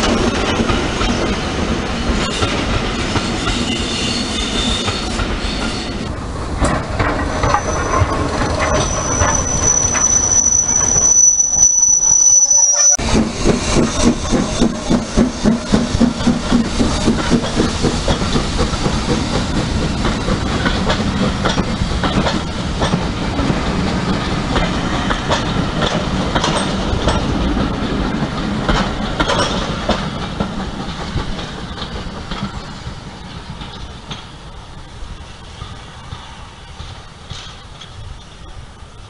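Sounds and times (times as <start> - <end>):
wheels clicking over rail joints: 6.0 - 10.9, 13.0 - 38.6
steam locomotive exhaust beating: 12.9 - 39.0.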